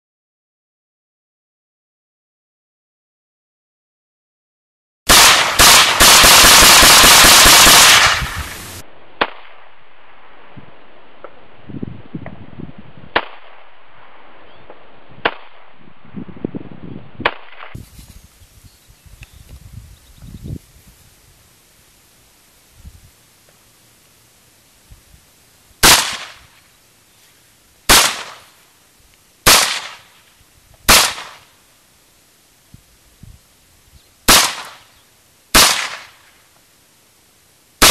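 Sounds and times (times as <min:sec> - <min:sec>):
rifle firing rapid shots: 0:05.1 - 0:08.6, 0:25.8 - 0:26.3, 0:27.9 - 0:28.4, 0:29.5 - 0:30.0, 0:30.9 - 0:31.4, 0:34.3 - 0:34.7, 0:35.6 - 0:36.0.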